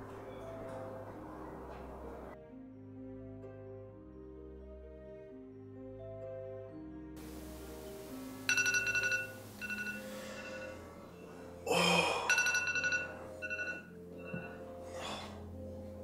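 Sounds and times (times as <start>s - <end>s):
soft music: 0.0s - 16.0s
phone ringing in trilling bursts: 8.4s - 10.9s, 12.3s - 14.6s.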